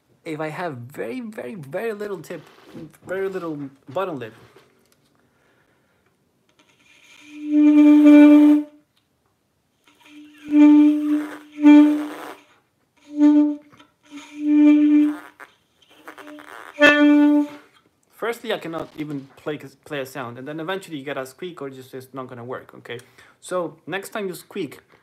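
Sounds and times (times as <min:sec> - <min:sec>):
breathy saxophone low note: 0:09.9 - 0:17.7.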